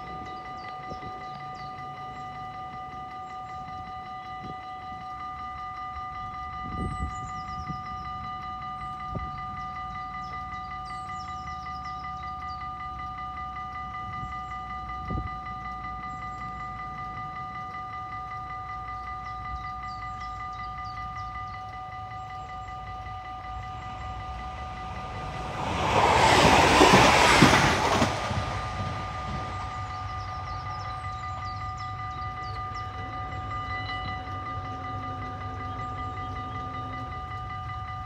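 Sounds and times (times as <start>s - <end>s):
level-crossing warning bell: 0.0s - 38.0s
passenger train rushing past: 21.5s - 38.0s.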